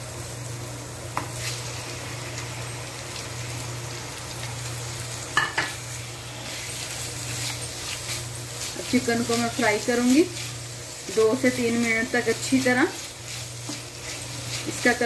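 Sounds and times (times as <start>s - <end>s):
oil sizzling in frying pan: 0.0s - 15.0s
spatula stirring: 6.4s - 15.0s.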